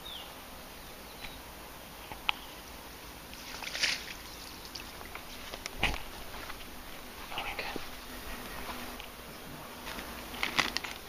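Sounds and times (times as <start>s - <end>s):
water splash: 3.3s - 5.2s.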